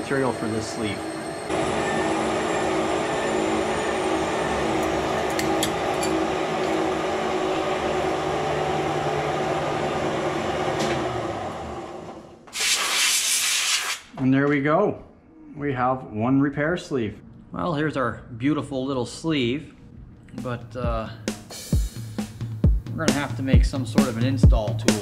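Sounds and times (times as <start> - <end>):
metal lathe running: 0.0 - 12.2
compressed air blast: 12.5 - 14.1.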